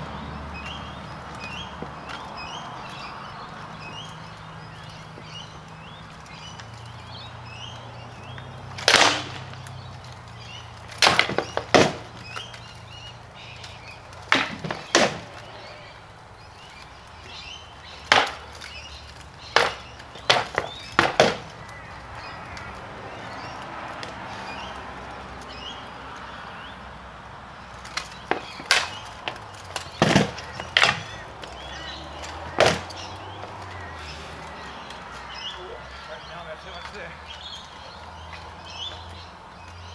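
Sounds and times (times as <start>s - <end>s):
swords clashing on wooden shields: 8.8s - 9.6s, 10.9s - 12.6s, 13.6s - 15.5s, 18.0s - 18.8s, 19.5s - 21.6s, 27.9s - 33.1s.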